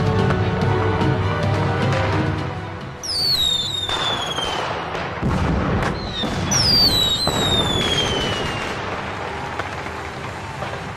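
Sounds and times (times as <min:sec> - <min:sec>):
firework rocket whistle: 0:03.0 - 0:04.7, 0:05.9 - 0:09.0
firework bangs and crackling: 0:03.0 - 0:10.9.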